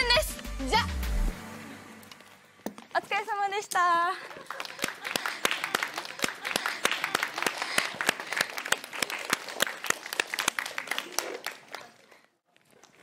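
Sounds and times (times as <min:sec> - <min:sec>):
small group applauding: 0:04.1 - 0:13.0.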